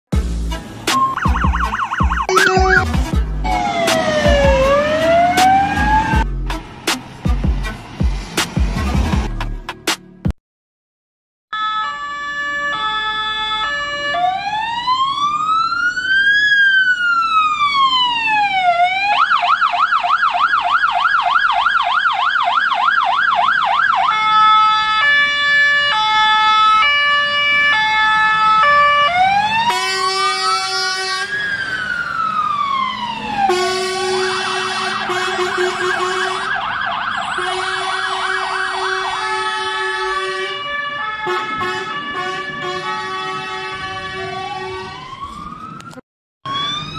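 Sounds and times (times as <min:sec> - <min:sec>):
electronic siren cycling tones: 0:01.0 - 0:06.2, 0:11.6 - 0:15.7.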